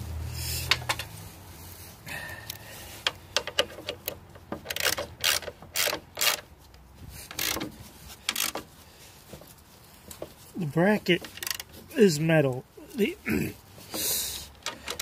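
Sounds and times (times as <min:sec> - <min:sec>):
socket ratchet clicking: 0:03.0 - 0:06.4, 0:07.3 - 0:07.7, 0:08.3 - 0:08.6, 0:14.6 - 0:15.0.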